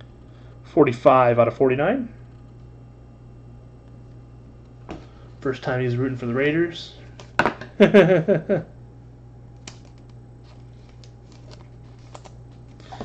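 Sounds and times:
steady low hum: 0.0 - 13.0
trading cards clicking: 9.6 - 10.2.

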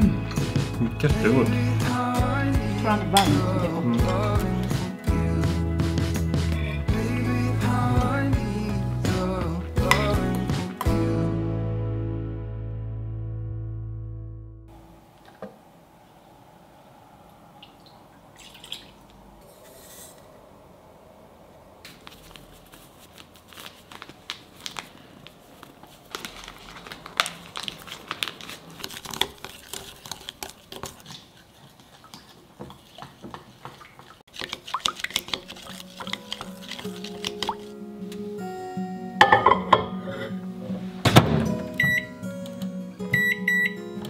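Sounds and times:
plastic bag crinkling: 22.0 - 31.2
chopsticks stirring wet batter: 28.8 - 37.8.

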